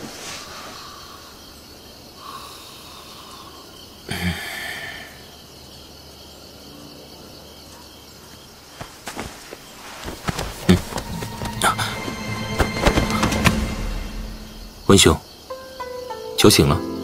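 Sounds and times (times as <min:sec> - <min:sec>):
rustle: 0:00.0 - 0:04.6, 0:06.3 - 0:10.8
faint background noise: 0:00.0 - 0:13.1.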